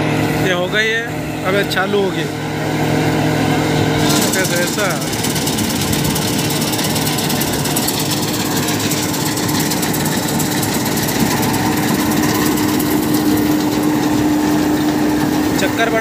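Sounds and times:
combine harvester clattering: 0:00.0 - 0:16.0
constant low hum: 0:00.0 - 0:16.0.

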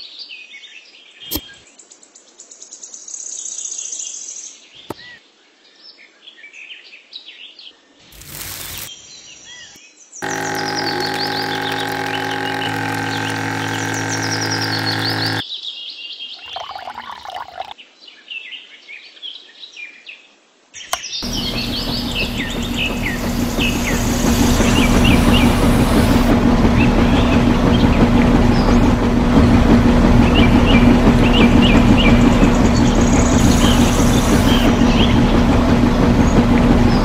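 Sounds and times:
small motor humming: 0:08.1 - 0:08.9, 0:10.2 - 0:15.4, 0:21.2 - 0:37.0
birds chirping: 0:10.2 - 0:15.4, 0:21.2 - 0:37.0.

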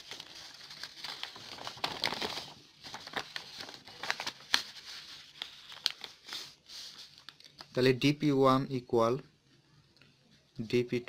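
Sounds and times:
paper rustling and sliding: 0:00.0 - 0:07.7.

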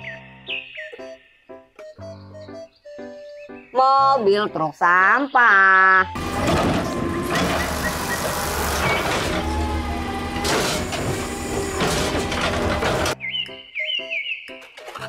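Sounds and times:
metal clanks: 0:06.2 - 0:09.6, 0:10.3 - 0:13.2
diesel engine running hard: 0:06.2 - 0:13.2
hydraulic arm lifting cart: 0:06.2 - 0:13.2.

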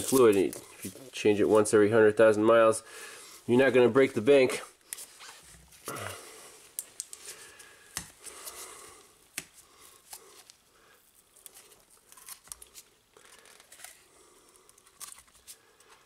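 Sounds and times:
foil seal crinkling and tearing: 0:00.0 - 0:01.2, 0:10.0 - 0:15.6.

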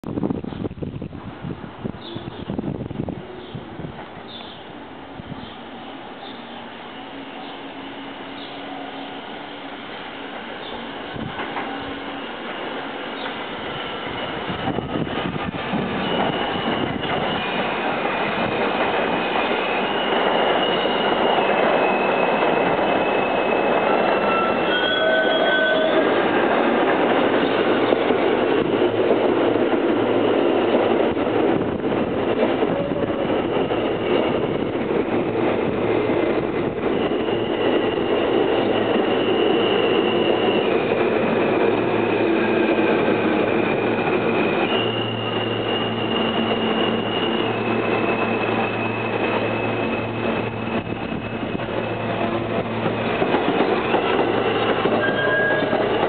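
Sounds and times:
train wheels rumbling on rail: 0:00.0 - 0:56.0
high squeal: 0:05.4 - 0:26.5, 0:36.8 - 0:56.0.

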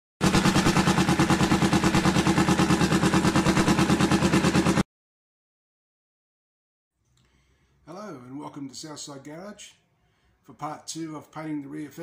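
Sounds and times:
motorcycle engine idling: 0:00.2 - 0:04.8.

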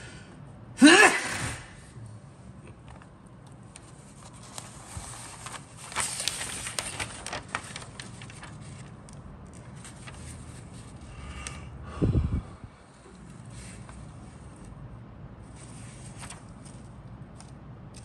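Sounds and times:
paper rustling and crackling: 0:02.8 - 0:11.1, 0:15.4 - 0:18.0.

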